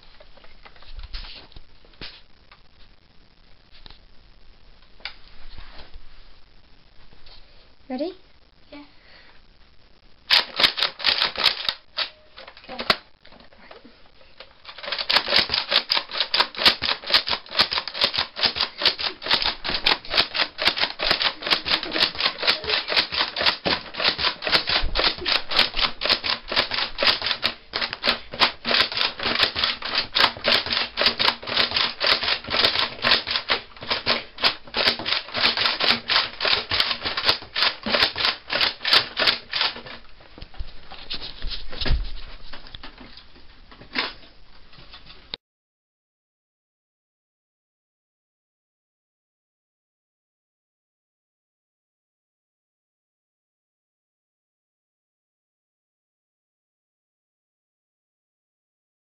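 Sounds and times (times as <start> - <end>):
toy blaster pumping and firing: 10.3 - 12.2, 14.6 - 40.0.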